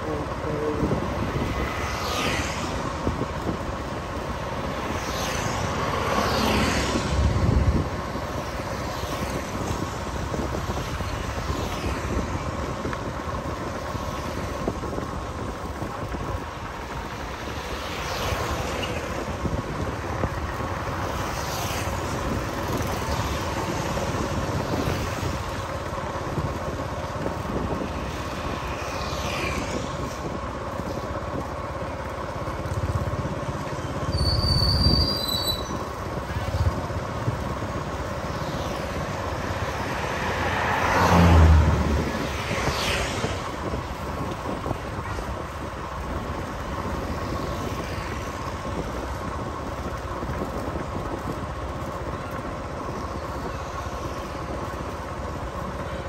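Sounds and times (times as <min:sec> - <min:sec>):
road and traffic noise: 0:00.0 - 0:56.0
vehicles passing by: 0:00.0 - 0:56.0.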